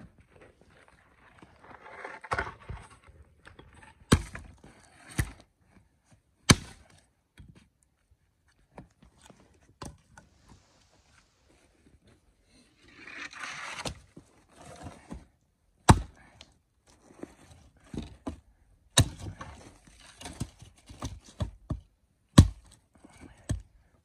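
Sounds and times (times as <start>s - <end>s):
axe chopping into log: 6.5s - 6.9s, 15.8s - 16.2s, 19.0s - 19.4s, 22.4s - 22.7s.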